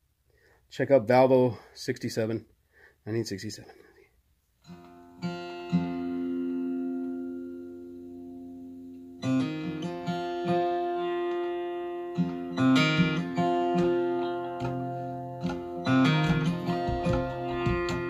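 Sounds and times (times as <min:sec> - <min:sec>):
recorded music with ringing chords: 0:04.6 - 0:18.0.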